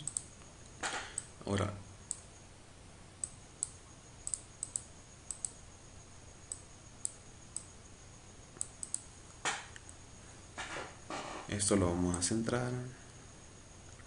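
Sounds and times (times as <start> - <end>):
computer mouse clicking: 0.0 - 0.3, 3.2 - 5.6, 8.6 - 9.1
faint low hum: 0.0 - 14.0.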